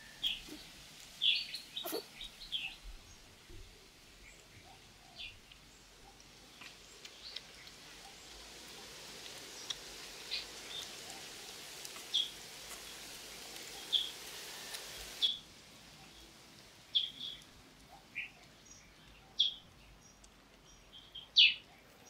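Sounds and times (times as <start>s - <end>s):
birds chirping: 0.0s - 8.4s
outdoor hiss: 0.0s - 21.2s.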